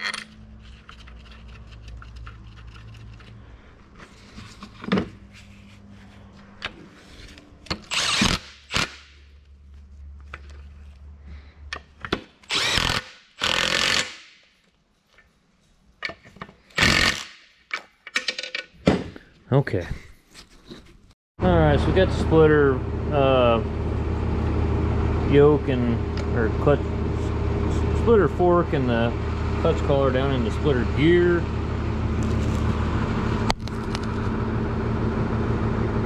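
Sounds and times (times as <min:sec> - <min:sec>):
impact wrench hammering: 0:11.8 - 0:14.4
steady low hum: 0:21.4 - 0:36.0.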